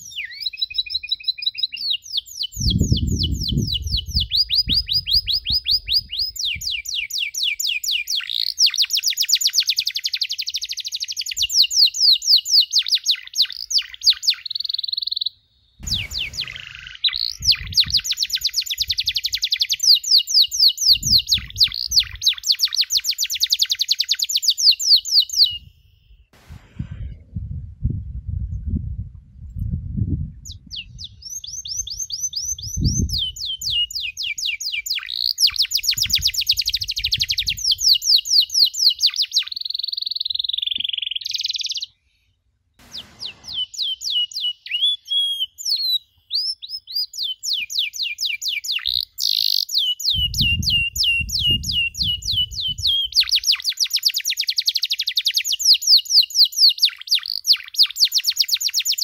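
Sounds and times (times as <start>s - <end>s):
canary singing trills: 0.0s - 26.3s, 30.4s - 41.9s, 42.9s - 59.0s
low rumbles: 15.8s - 18.0s, 26.4s - 30.7s.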